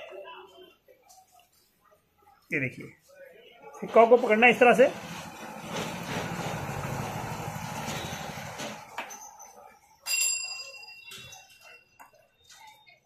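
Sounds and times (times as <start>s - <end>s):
vehicle engine running: 5.4s - 8.9s
metallic clink ringing: 9.2s - 12.2s.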